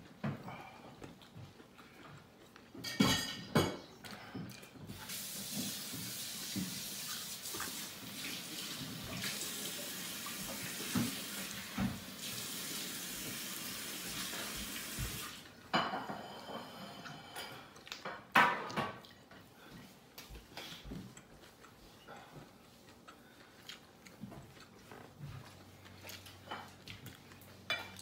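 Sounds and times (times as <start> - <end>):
faucet running into sink: 5.1 - 15.4.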